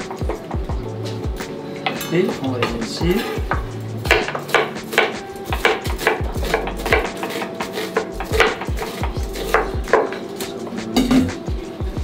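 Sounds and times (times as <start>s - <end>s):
knives chopping on plastic boards: 3.5s - 10.2s.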